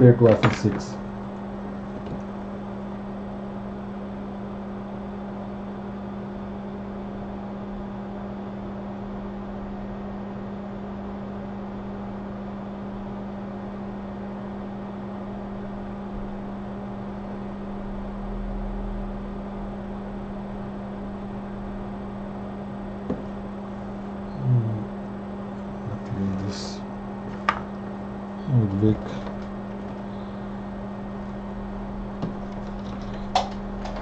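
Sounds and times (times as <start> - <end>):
electrical hum: 0.0 - 34.0
fan-like hiss: 23.1 - 32.2
low handling sounds: 25.6 - 27.8.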